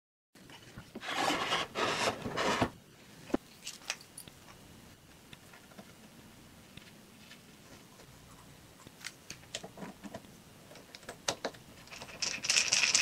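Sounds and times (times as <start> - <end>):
wood scraping on deck: 1.0 - 2.8.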